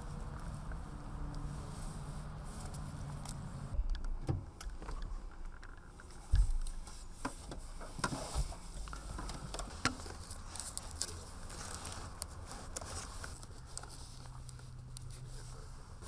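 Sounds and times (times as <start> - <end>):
clicks and rustles of handling: 0.0 - 16.0.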